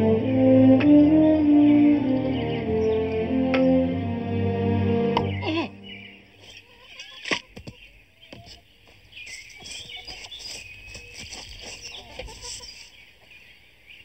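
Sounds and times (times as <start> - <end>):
birds chirping faintly: 0.0 - 14.0
light rustling: 6.4 - 13.4.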